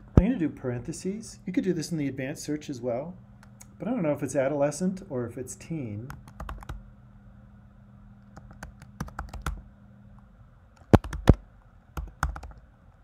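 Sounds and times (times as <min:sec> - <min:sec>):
keyboard typing: 0:06.1 - 0:06.8, 0:08.3 - 0:09.6, 0:10.8 - 0:11.4, 0:12.0 - 0:12.6.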